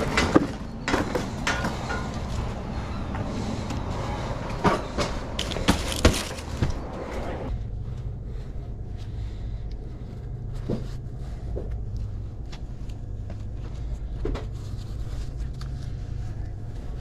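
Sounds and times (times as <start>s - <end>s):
steady low rumble: 0.0s - 17.0s
fabric gloves rustling: 8.3s - 17.0s.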